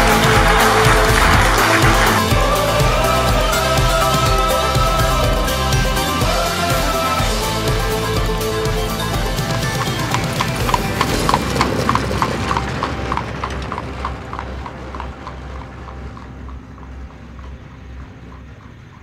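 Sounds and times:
horse hooves clip-clopping on pavement: 8.6 - 19.0.

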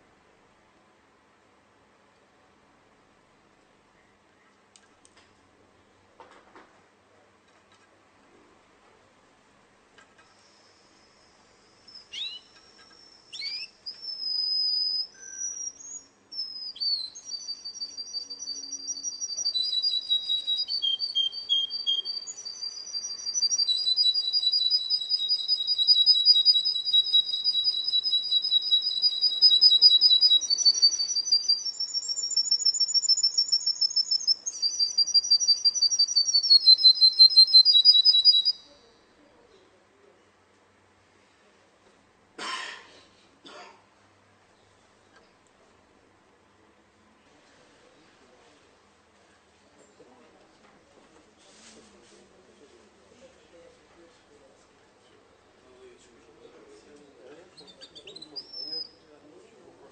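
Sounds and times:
canary singing rapid trills: 11.8 - 38.8, 57.4 - 59.0.

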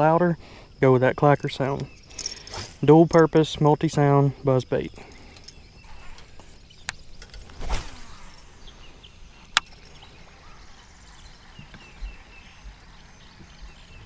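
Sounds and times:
birds chirping: 0.0 - 14.0
fishing reel whooshing whir: 7.4 - 8.6.

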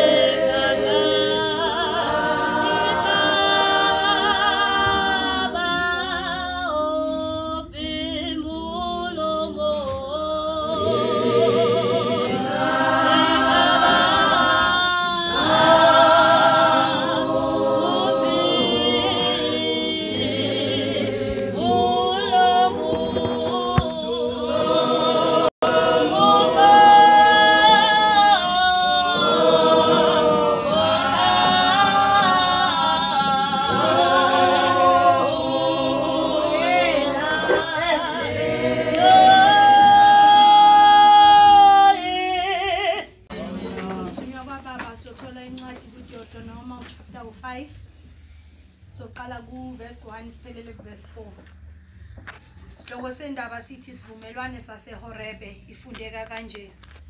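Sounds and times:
choir singing a cappella: 0.0 - 44.4.

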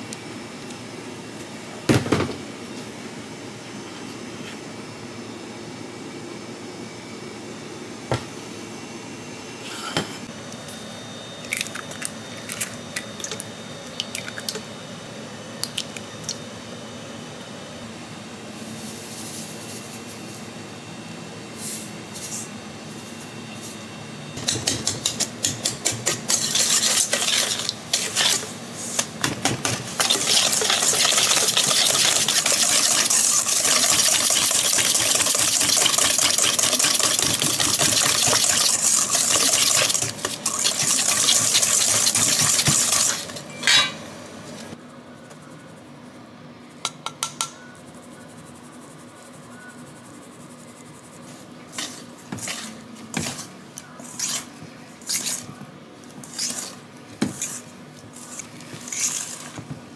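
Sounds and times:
metal kitchenware clattering: 43.5 - 44.0.

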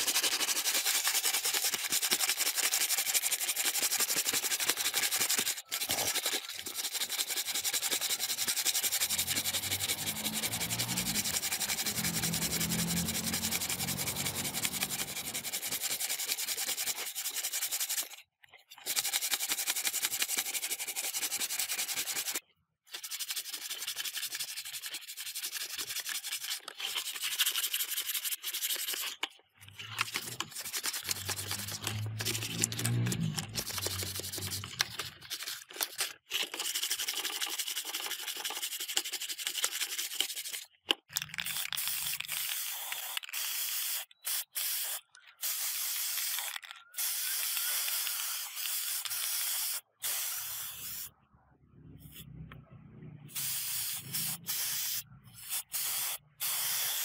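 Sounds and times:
sanding on hard surface: 0.0 - 18.2, 18.9 - 22.4, 23.0 - 29.1, 29.9 - 40.6.

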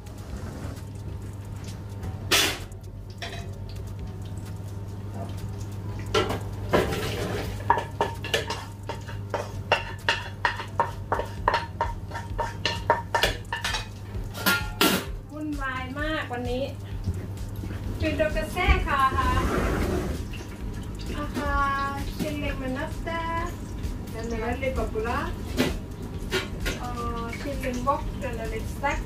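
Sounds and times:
steady low hum: 0.0 - 29.0
spatula clanking in frying pan: 5.2 - 15.3.

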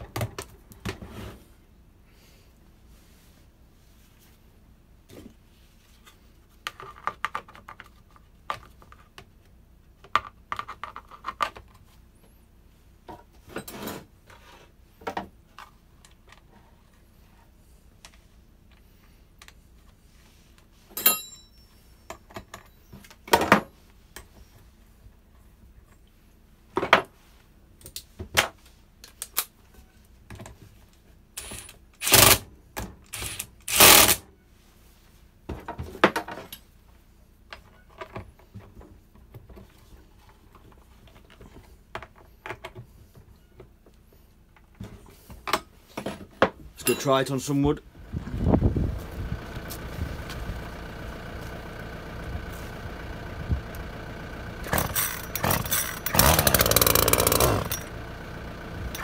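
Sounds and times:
metal tools clicking and knocking: 54.7 - 57.9.

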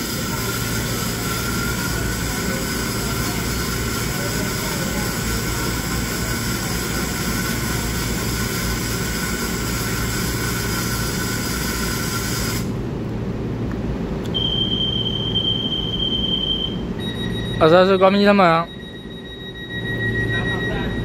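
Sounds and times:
train equipment hum and hiss: 0.0 - 18.7
high door warning beep: 14.3 - 21.0.

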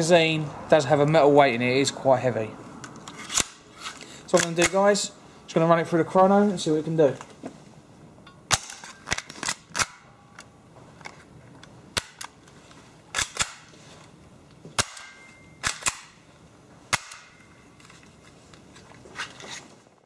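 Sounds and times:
airsoft pistol cocked and fired: 13.1 - 13.7, 14.8 - 16.2, 16.9 - 17.4.

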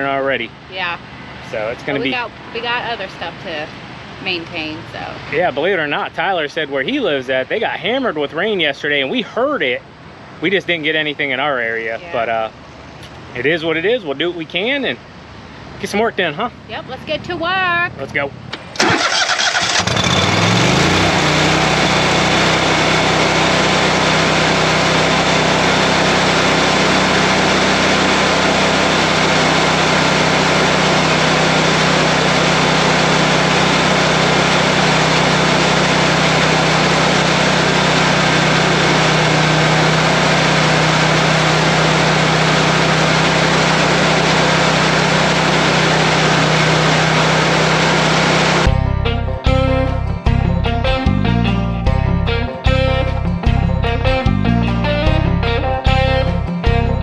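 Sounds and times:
lawn mower engine running: 1.4 - 3.5, 18.5 - 48.8.

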